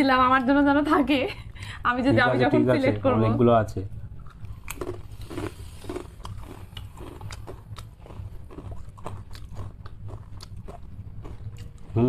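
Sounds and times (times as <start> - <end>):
low background hum: 0.0 - 12.0
man chewing potato chips: 4.0 - 12.0.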